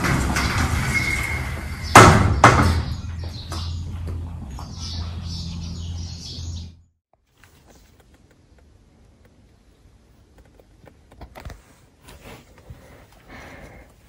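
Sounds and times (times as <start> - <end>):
glass door slamming shut: 0.0 - 3.1
birds chirping: 0.4 - 7.0.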